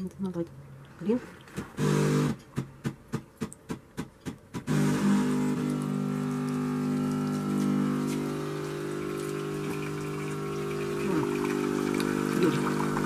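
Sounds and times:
pump humming: 1.7 - 2.4, 4.7 - 13.0
coffee machine hum: 4.6 - 13.0.

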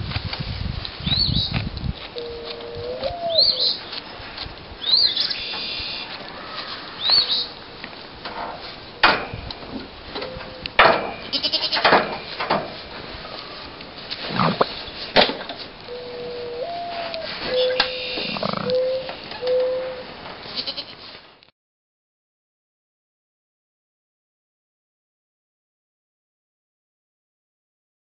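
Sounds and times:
high bird chirps: 4.8 - 6.1, 7.0 - 7.5, 17.5 - 19.8
goat bleating: 11.2 - 11.9, 13.4 - 14.8, 17.7 - 18.7, 20.5 - 21.0.

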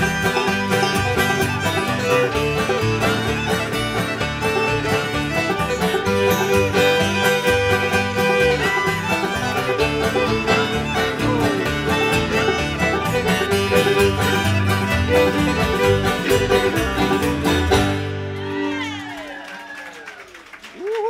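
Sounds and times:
banjos: 0.0 - 18.8
acoustic guitar: 0.0 - 19.0
upright bass: 0.0 - 19.0
fiddle melody: 0.0 - 19.2.

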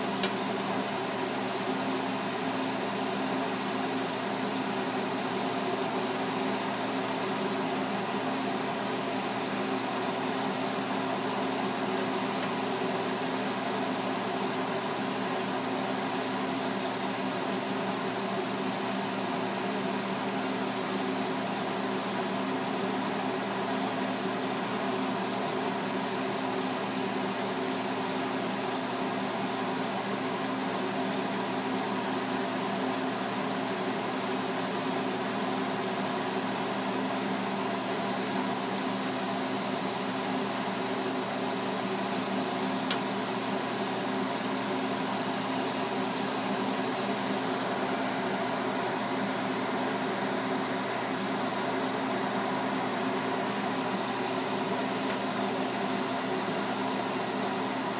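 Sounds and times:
steady hum: 36.2 - 57.9.

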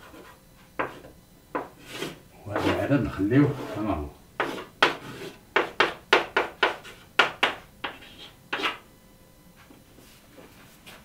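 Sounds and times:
chalk tapping and scraping: 0.0 - 2.9, 3.5 - 8.8.

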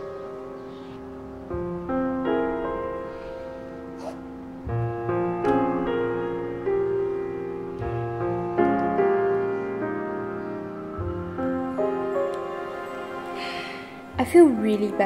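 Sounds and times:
piano chords ringing: 0.0 - 15.0.

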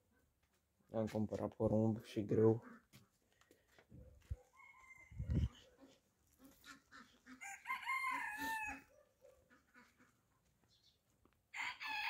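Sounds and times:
hens clucking softly: 4.0 - 11.0
rooster crowing: 4.5 - 5.4, 7.4 - 8.9, 11.5 - 12.0.

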